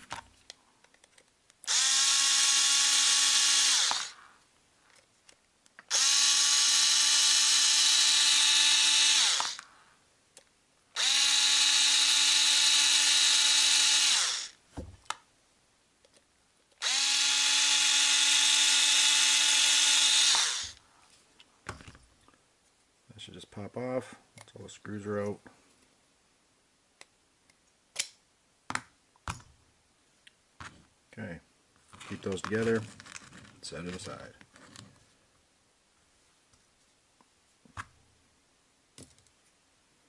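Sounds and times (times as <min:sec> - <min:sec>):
electric screwdriver whining: 0:01.6 - 0:04.3, 0:05.9 - 0:09.7, 0:11.0 - 0:14.6, 0:16.8 - 0:20.8.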